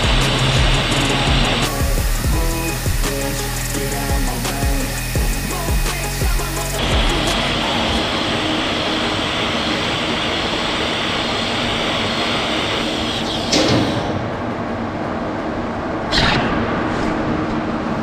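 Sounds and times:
welding arc hissing: 0:00.0 - 0:13.4
workshop hum: 0:00.0 - 0:18.0.

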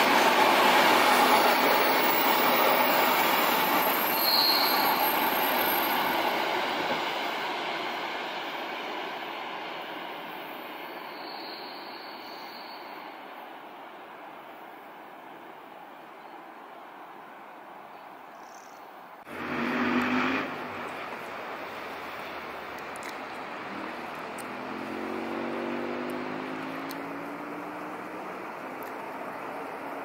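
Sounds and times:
train running past: 0:00.0 - 0:17.9, 0:19.2 - 0:30.0
high wheel squeals: 0:01.1 - 0:06.8, 0:10.5 - 0:13.2.

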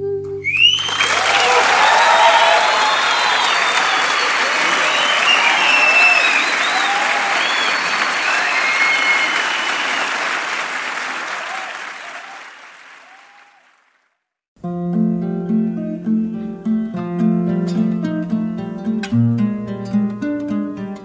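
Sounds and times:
audience applause: 0:00.5 - 0:14.1
scattered cheers: 0:00.6 - 0:13.8
acoustic guitar playing: 0:14.6 - 0:21.0.

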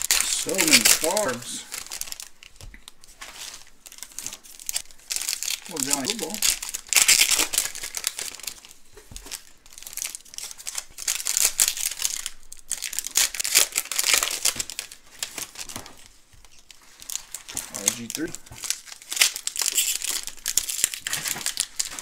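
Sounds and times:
card pack wrappers crinkling: 0:00.0 - 0:22.0.

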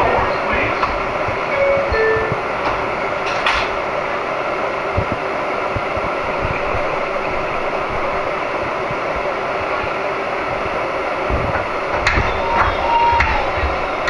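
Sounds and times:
subway train rumble: 0:00.0 - 0:14.0
low knocks: 0:11.3 - 0:14.0.

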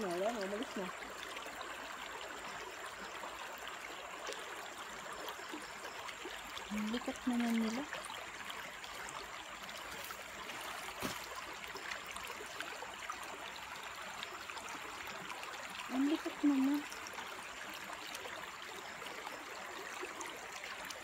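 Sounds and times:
stream over pebbles: 0:00.0 - 0:21.0.

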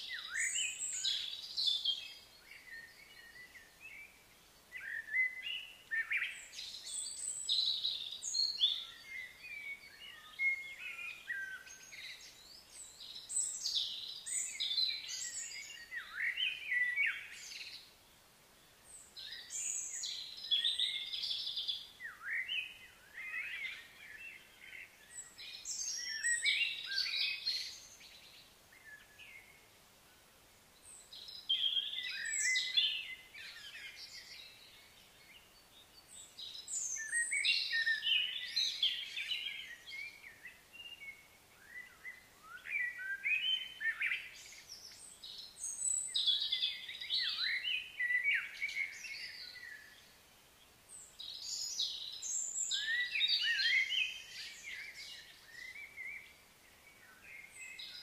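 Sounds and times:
birds chirping and singing: 0:00.0 - 0:04.2, 0:04.8 - 0:17.9, 0:19.0 - 0:29.6, 0:30.9 - 0:50.2, 0:50.9 - 0:58.0
faint outdoor background noise: 0:00.0 - 0:58.0.

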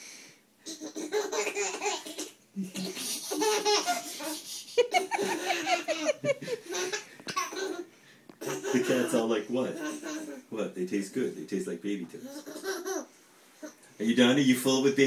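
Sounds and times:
baby laughing: 0:00.7 - 0:10.5, 0:12.2 - 0:13.8.

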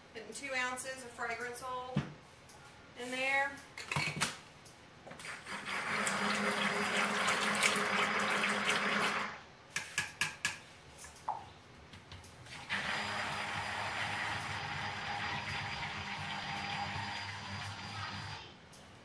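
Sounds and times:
stick blender running: 0:05.4 - 0:09.4, 0:12.5 - 0:18.4.

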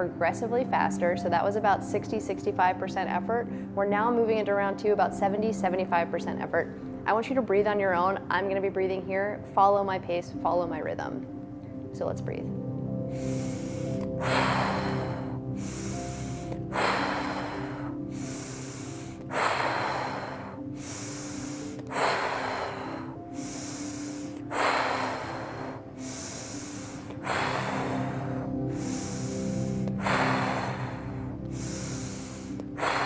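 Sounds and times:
soft background music: 0:00.0 - 0:33.0
woman inhaling through nose: 0:13.0 - 0:33.0
woman exhaling forcefully: 0:13.1 - 0:33.0.

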